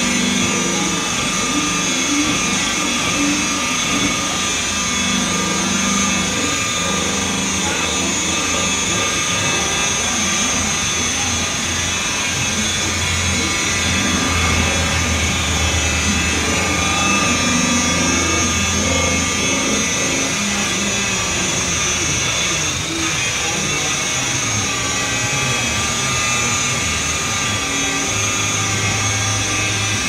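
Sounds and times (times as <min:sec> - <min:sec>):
deeper hum: 0:00.0 - 0:30.0
polisher motor whining: 0:00.0 - 0:30.0.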